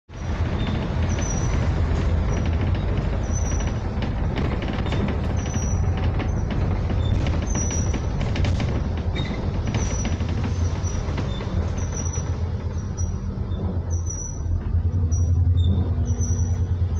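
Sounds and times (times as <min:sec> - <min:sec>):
bus engine drone: 0:00.0 - 0:16.9
bodywork rattles and clicks: 0:00.1 - 0:16.9
high squeaks: 0:00.2 - 0:16.9.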